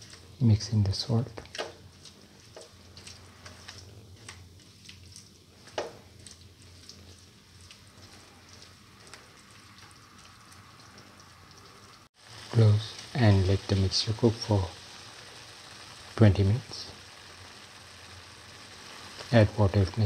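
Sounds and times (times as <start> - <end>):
spatula stirring: 0.0 - 0.4, 1.4 - 11.9
food sizzling in a pan: 0.0 - 20.0
small crackles: 0.0 - 20.0.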